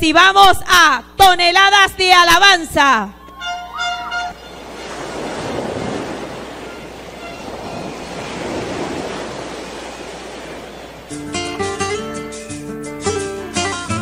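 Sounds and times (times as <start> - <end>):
strummed acoustic guitar music: 11.1 - 14.0.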